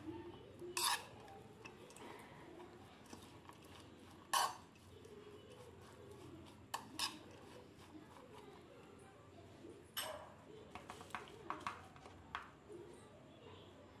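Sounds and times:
spoon scraping vegetables in bowl: 0:00.0 - 0:09.1, 0:09.8 - 0:12.6.

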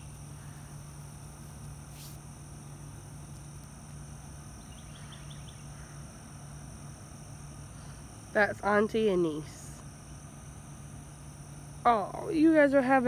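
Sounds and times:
faint hiss: 0:00.0 - 0:06.7
steady low hum: 0:00.0 - 0:13.0.

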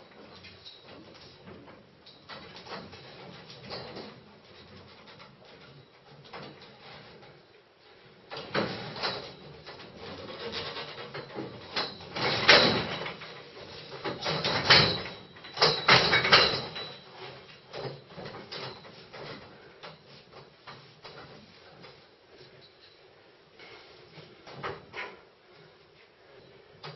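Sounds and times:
hands and feet on steel tubes: 0:00.0 - 0:26.9.

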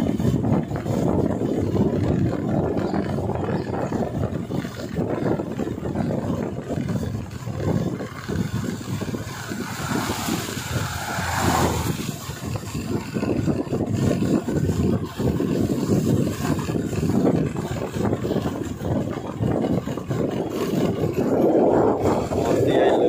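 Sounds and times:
vehicle engine and road noise: 0:00.0 - 0:23.0
wind buffeting microphone: 0:00.0 - 0:23.0
car passing: 0:07.6 - 0:12.9.

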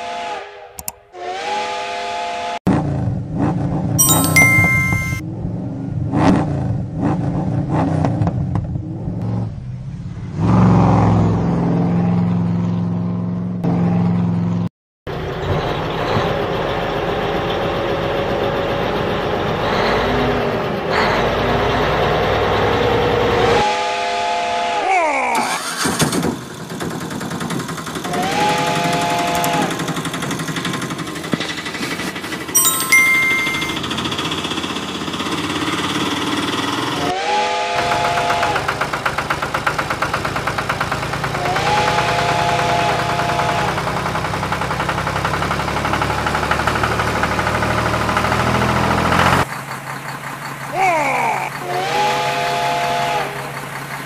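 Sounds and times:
vehicle engine revving: 0:05.4 - 0:14.4.

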